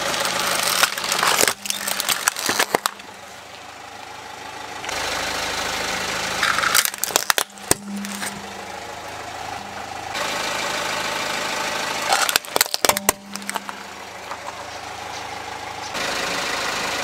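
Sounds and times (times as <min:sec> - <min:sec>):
car engine running: 0:00.0 - 0:17.0
plastic toys cracking under tyre: 0:00.2 - 0:03.1, 0:06.4 - 0:08.4, 0:12.1 - 0:14.4.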